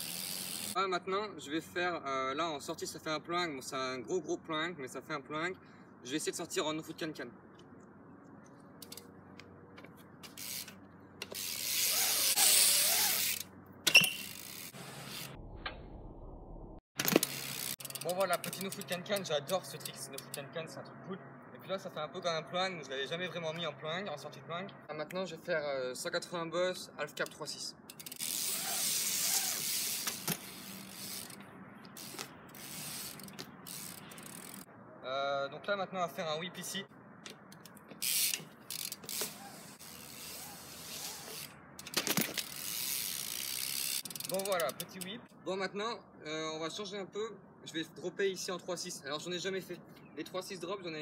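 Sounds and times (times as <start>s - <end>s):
bike tyres rolling on concrete: 0.0s - 0.8s, 9.8s - 15.4s, 17.0s - 20.4s, 27.4s - 34.7s, 37.3s - 45.2s
bike tyres hissing on concrete: 11.4s - 13.4s, 28.2s - 34.7s, 38.0s - 41.5s
bike landing clack: 17.0s - 19.0s, 41.8s - 42.7s.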